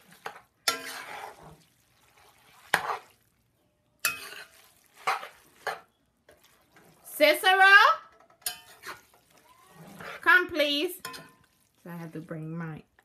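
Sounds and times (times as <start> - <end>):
metal spoon scraping a pot: 0.0 - 1.6, 2.6 - 3.1, 4.0 - 6.9, 8.4 - 10.4, 11.0 - 11.5.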